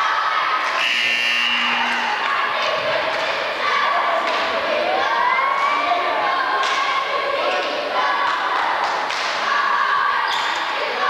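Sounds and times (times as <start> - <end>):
crowd voices and cheering: 0.0 - 11.0
referee's whistle blast: 0.8 - 2.2.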